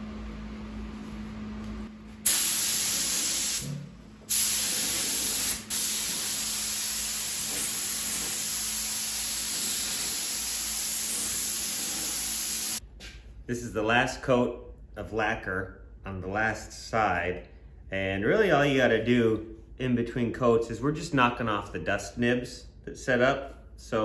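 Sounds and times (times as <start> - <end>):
spray gun hissing: 2.2 - 3.7, 4.3 - 12.8.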